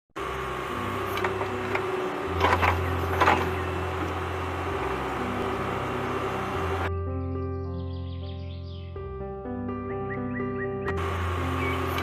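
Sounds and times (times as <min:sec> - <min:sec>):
small electric motor humming: 0:00.2 - 0:06.9, 0:11.0 - 0:12.0.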